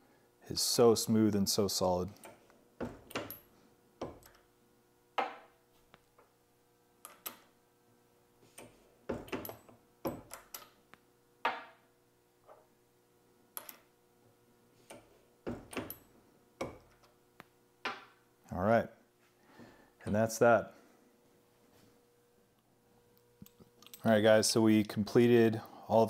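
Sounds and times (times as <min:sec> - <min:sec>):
metallic clicks and knocks: 0:02.2 - 0:04.4, 0:08.6 - 0:10.8, 0:23.4 - 0:24.1.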